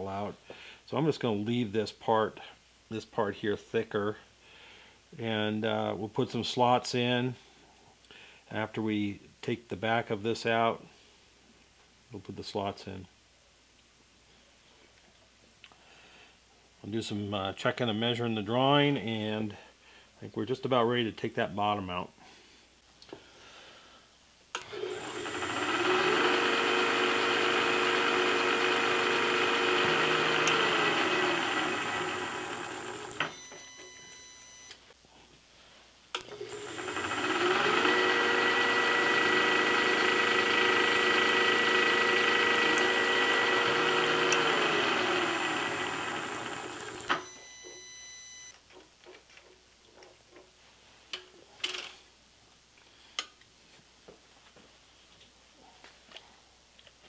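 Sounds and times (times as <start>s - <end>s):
drill cutting metal hiss: 24.6s - 33.3s, 36.2s - 47.2s
milling machine spindle spinning: 24.6s - 33.3s, 36.2s - 47.4s.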